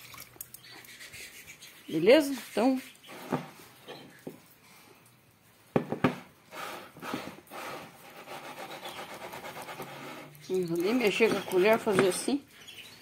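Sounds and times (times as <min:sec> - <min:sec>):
glass bowl knocking on table: 0:05.8 - 0:06.2
rhythmic rubbing in bowl: 0:06.5 - 0:12.4.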